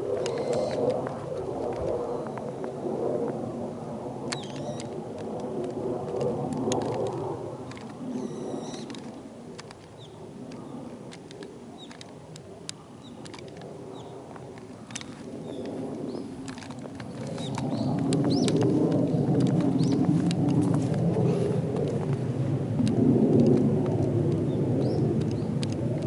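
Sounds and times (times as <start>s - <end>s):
small birds chirping: 0.2s - 0.8s, 4.3s - 4.9s, 8.1s - 9.2s, 9.9s - 10.9s, 11.8s - 12.1s, 12.7s - 14.2s, 14.8s - 18.6s, 19.7s - 20.1s, 24.5s - 25.6s.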